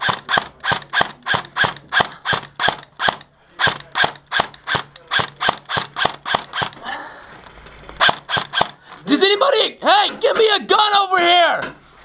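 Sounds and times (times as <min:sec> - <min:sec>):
airsoft rifle shots: 0:00.0 - 0:06.8, 0:08.0 - 0:08.8.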